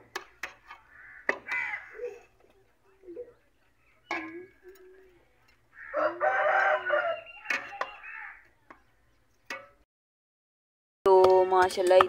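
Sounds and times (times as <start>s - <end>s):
metal spoon clinking on pot: 3.9s - 5.7s
rooster crowing: 5.7s - 8.4s.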